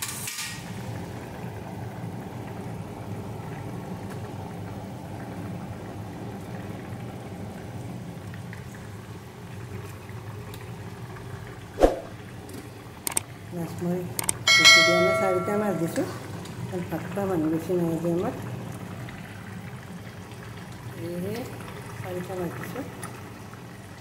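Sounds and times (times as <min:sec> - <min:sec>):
curry bubbling and sizzling: 0:00.0 - 0:14.2, 0:14.9 - 0:24.0
brief sharp sound: 0:11.8 - 0:12.1.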